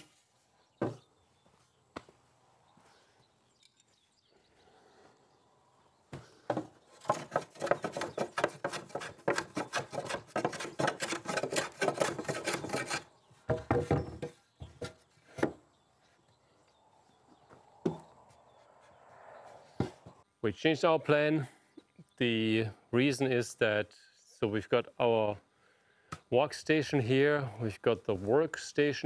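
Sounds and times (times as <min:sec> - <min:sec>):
hand tool scraping wood: 0:06.2 - 0:15.6
knocks on wood: 0:13.5 - 0:15.6.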